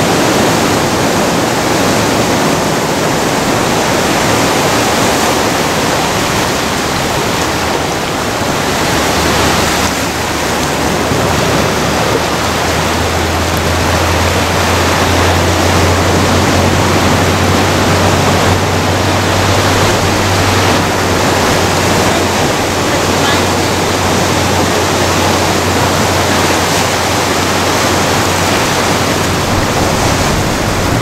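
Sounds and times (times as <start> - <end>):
ocean surf breaking: 0.0 - 31.0
low rumble: 3.1 - 31.0.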